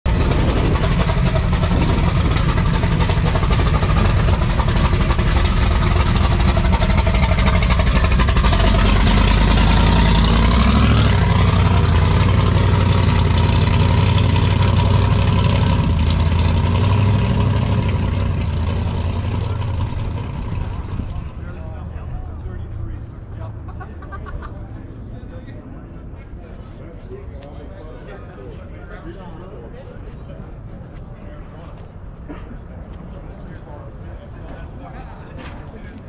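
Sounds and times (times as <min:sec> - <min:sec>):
car engine running: 0:00.1 - 0:22.4.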